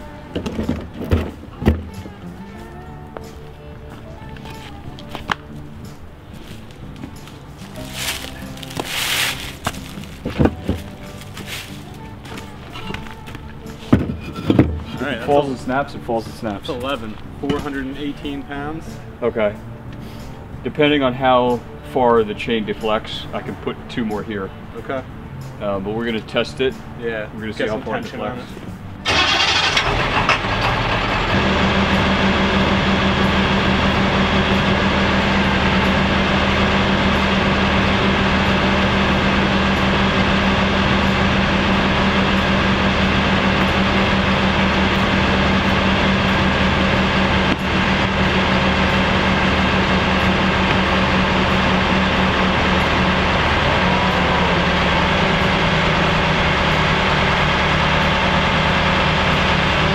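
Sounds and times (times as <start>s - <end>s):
truck engine and hydraulic pump: 29.0s - 59.9s.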